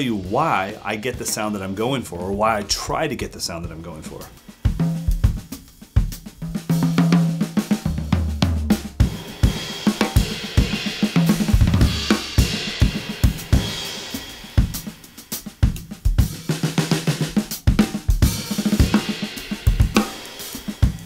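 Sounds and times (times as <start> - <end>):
drum kit groove: 0.0 - 21.0.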